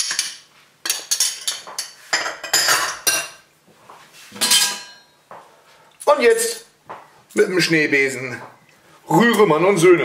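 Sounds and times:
spoon clattering: 0:00.0 - 0:03.4.

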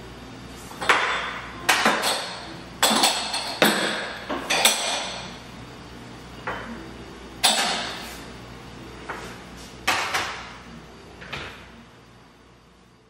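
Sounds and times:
cups and glasses clinking: 0:00.8 - 0:05.3, 0:06.4 - 0:06.8.

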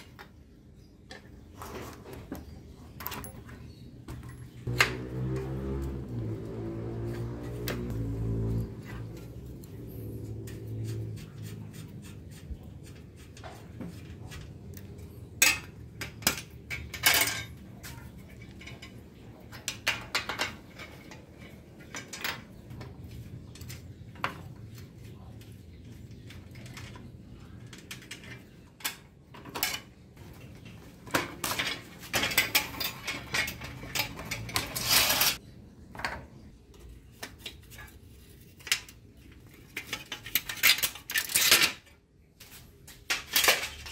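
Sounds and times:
spanner and metal parts clinking: 0:02.9 - 0:05.4, 0:14.8 - 0:24.4, 0:31.2 - 0:35.4, 0:38.6 - 0:42.0.

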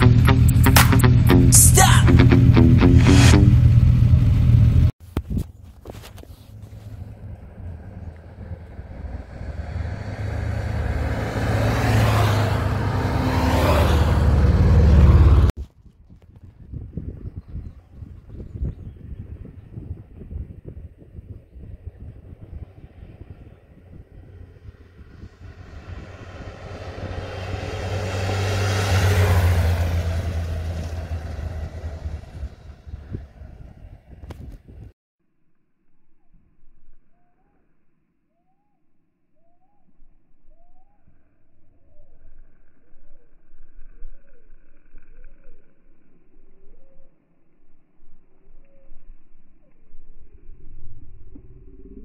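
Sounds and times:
faint wind: 0:03.0 - 0:52.0
motorcycles riding past: 0:06.5 - 0:15.5, 0:20.2 - 0:34.1.

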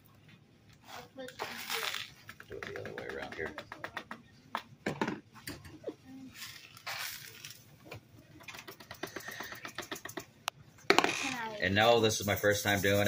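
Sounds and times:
gritty gravel pour: 0:06.4 - 0:07.5.

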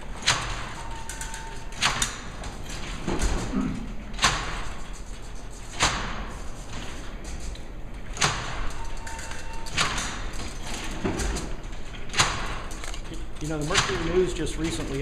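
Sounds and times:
mechanical rattling: 0:00.0 - 0:15.0
sharp metallic clacks: 0:04.2 - 0:15.0.

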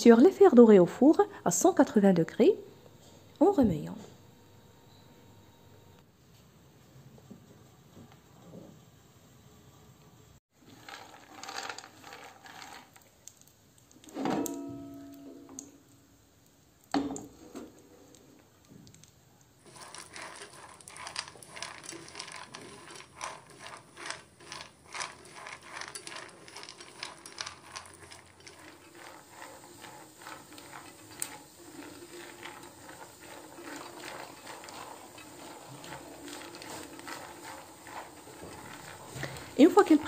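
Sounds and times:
peanuts rattling in frying pan: 0:10.6 - 0:14.1, 0:18.9 - 0:40.0.

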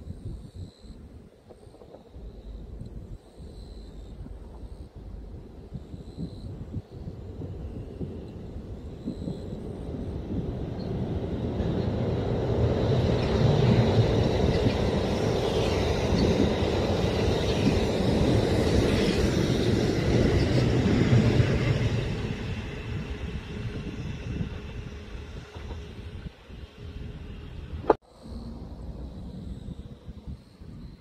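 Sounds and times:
train rumbling past on rails: 0:00.0 - 0:31.0.

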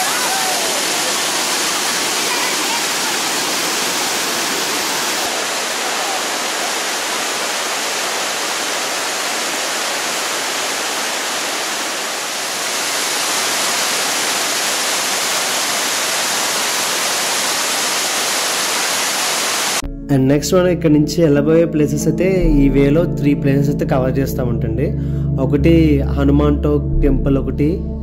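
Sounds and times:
waterfall rushing: 0:00.0 - 0:19.8.

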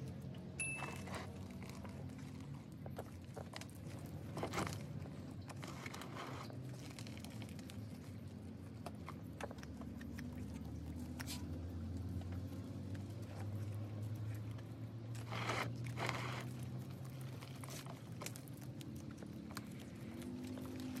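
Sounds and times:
low steady hum: 0:00.0 - 0:21.0
fingers crunching potting soil: 0:00.8 - 0:21.0.

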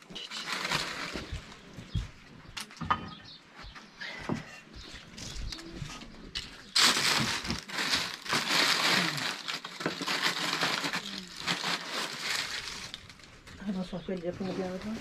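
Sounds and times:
hands rustling loose material: 0:06.4 - 0:15.0.

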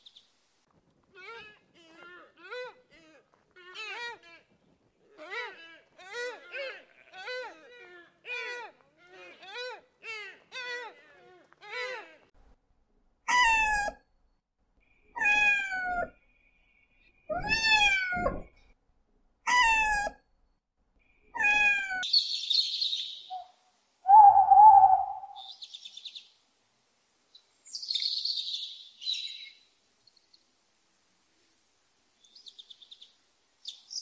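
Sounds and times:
bird calls and chirps: 0:22.0 - 0:26.4, 0:27.4 - 0:30.4.

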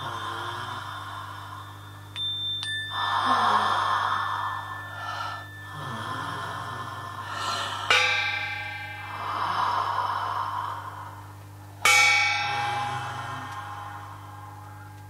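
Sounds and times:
high pure electronic tones: 0:00.0 - 0:10.4
low hum: 0:00.0 - 0:15.0.

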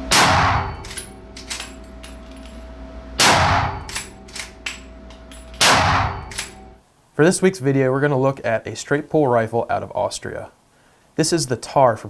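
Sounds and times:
rifle shots: 0:00.1 - 0:01.7, 0:03.2 - 0:04.6, 0:05.6 - 0:06.6.

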